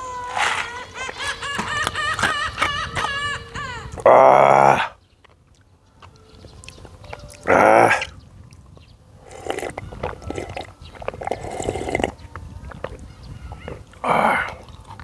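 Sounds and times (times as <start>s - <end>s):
noodles slurped and chewed: 5.4s - 15.0s.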